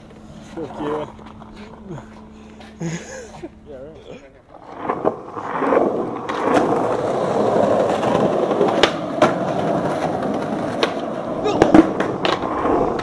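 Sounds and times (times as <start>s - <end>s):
skateboard wheels rolling on concrete: 0.0s - 13.0s
skateboard clacks: 4.4s - 13.0s.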